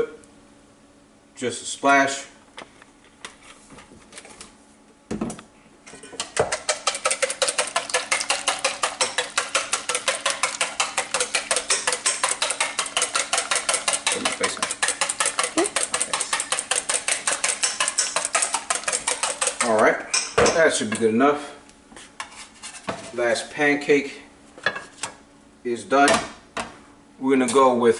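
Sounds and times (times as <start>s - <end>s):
whisk clinking in metal bowl: 6.2s - 21.1s.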